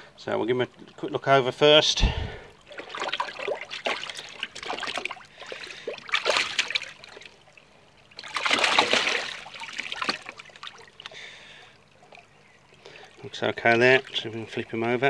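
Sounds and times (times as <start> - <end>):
water splashing in plastic bowl: 2.6 - 11.2.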